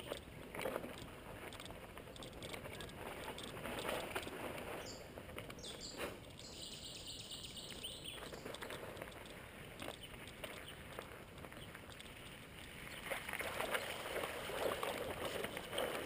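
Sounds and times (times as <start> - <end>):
bird chirping: 1.5 - 11.0.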